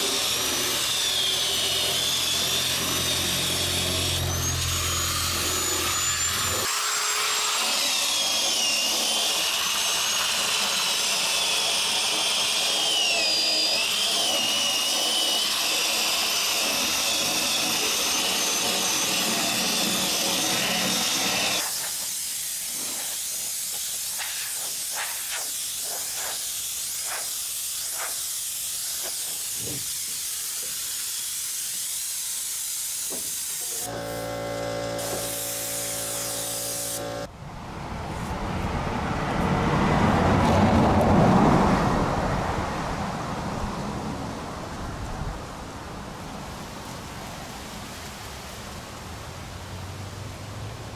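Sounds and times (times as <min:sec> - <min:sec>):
air grinder hiss and whine: 0:00.0 - 0:37.3.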